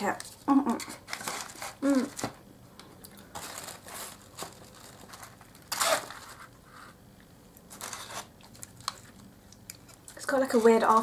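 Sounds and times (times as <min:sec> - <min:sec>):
plastic wrapper crinkling: 0:03.3 - 0:06.6, 0:07.6 - 0:11.0.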